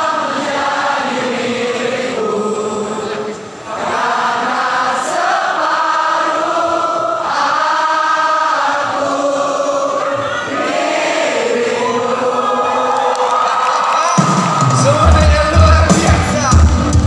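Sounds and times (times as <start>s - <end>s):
crowd singing along: 0.0s - 13.4s
band music: 14.0s - 17.0s.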